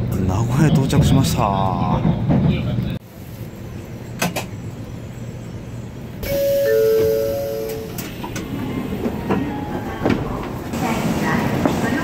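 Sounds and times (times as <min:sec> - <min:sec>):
two-note ding-dong chime: 0:06.2 - 0:08.0
platform noise: 0:06.2 - 0:08.2
train door opening: 0:06.2 - 0:12.0.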